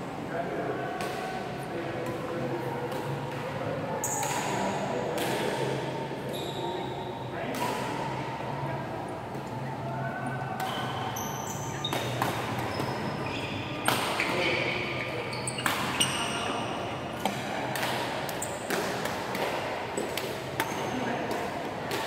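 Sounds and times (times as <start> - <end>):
shoes squeaking on court: 10.7 - 16.8
racket hitting shuttlecock: 11.9 - 13.0, 13.8 - 14.5, 15.6 - 16.3, 17.2 - 22.0.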